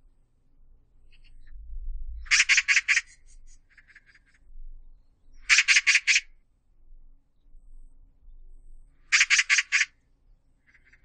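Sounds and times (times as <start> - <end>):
magpie harsh chattering call: 2.3 - 4.2, 5.5 - 6.3, 9.1 - 10.0.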